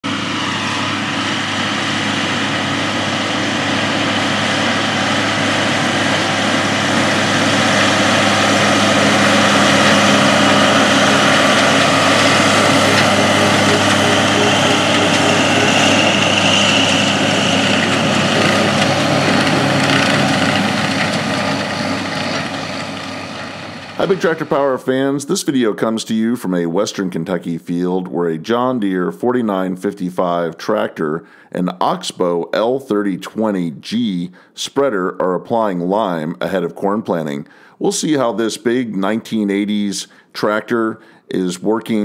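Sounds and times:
tractor diesel engine running: 0.0 - 24.9.

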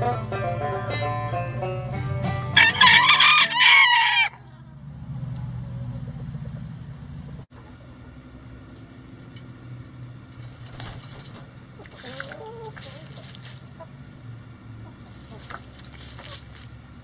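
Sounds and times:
banjo music: 0.0 - 3.6
rooster crowing: 2.5 - 4.8.

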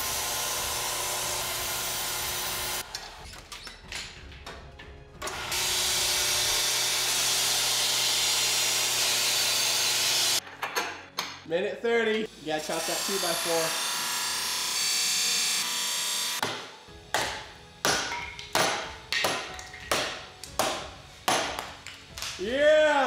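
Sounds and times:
belt grinder grinding steel: 0.0 - 3.2, 5.2 - 10.4, 12.6 - 16.4.

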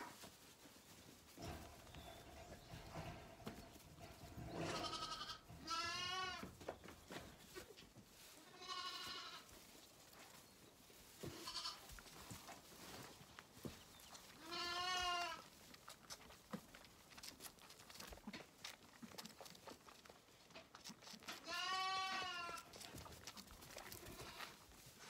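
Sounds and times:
rustling straw and hoof clicks: 0.0 - 25.0
lambs bleating: 4.6 - 6.5, 8.4 - 9.5, 11.2 - 12.0, 14.4 - 15.5, 21.3 - 22.8, 23.8 - 24.6.

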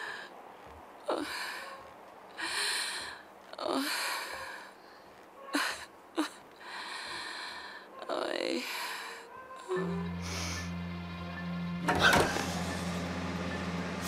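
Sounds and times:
woman breathing heavily: 0.0 - 0.4, 1.1 - 9.3.

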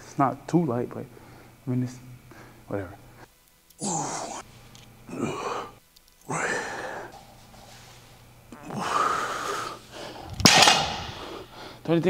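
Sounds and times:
man grunting: 3.8 - 4.4, 5.1 - 5.7, 6.3 - 7.1
man breathing hard: 5.1 - 8.0, 8.8 - 10.4, 11.0 - 11.9.

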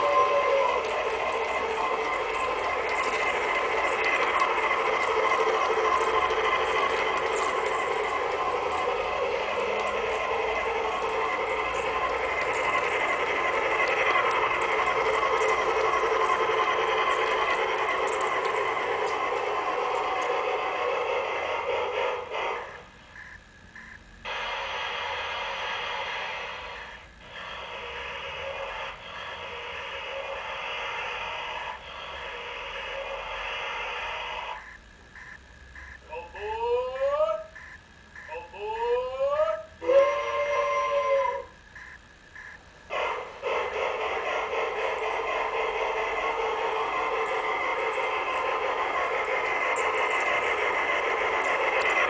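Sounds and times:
model train whistle tone: 0.0 - 3.2, 38.2 - 41.6
steady noise: 0.0 - 36.1, 41.5 - 52.0
model train running on track: 0.0 - 52.0.

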